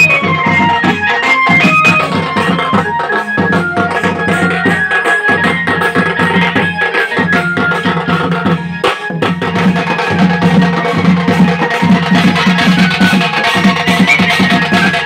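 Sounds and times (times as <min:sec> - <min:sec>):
loud dance music with drumming: 0:00.0 - 0:15.0.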